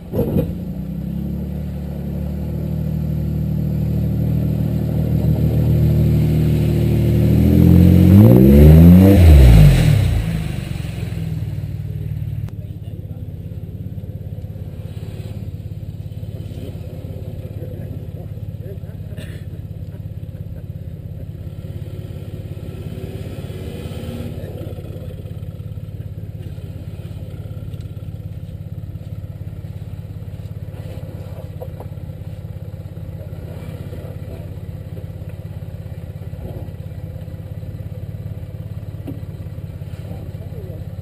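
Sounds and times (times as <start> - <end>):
vehicle engine at low revs: 0.0 - 41.0.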